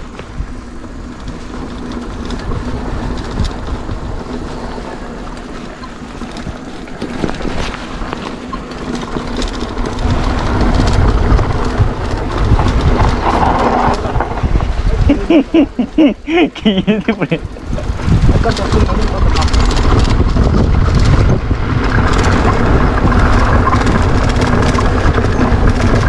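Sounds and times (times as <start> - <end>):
bike chain and frame rattling: 0.0 - 26.0
tyres rolling over dirt: 0.0 - 26.0
wind buffeting microphone: 0.0 - 26.0.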